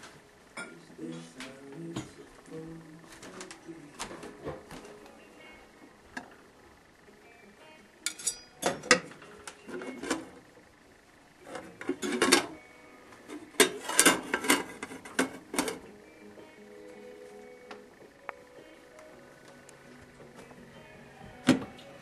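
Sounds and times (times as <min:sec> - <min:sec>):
metal saucepan lid clinking: 0:08.1 - 0:09.0.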